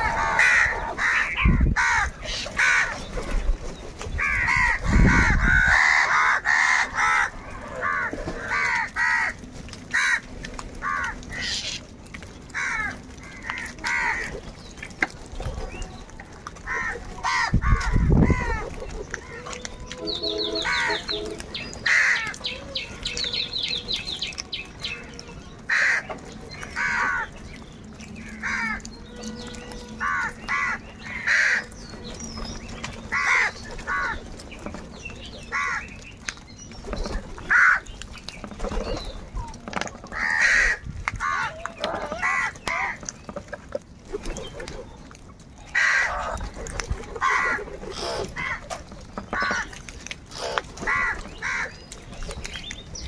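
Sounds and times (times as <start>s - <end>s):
crows cawing: 0.0s - 3.0s, 4.2s - 11.8s, 12.5s - 14.3s, 16.6s - 18.6s, 19.9s - 22.5s, 25.7s - 27.4s, 28.2s - 31.8s, 33.1s - 34.2s, 35.5s - 35.9s, 37.5s - 37.9s, 40.1s - 43.0s, 45.7s - 46.4s, 47.2s - 48.7s, 49.3s - 49.8s, 50.8s - 51.8s.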